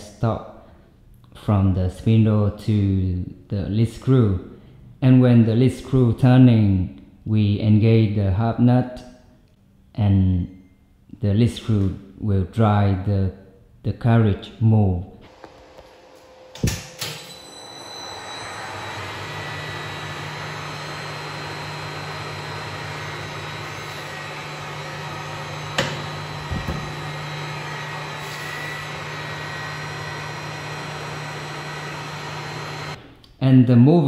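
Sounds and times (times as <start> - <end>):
lathe humming with gear whine: 15.3 - 33.0
lathe starting clunk: 15.3 - 33.0.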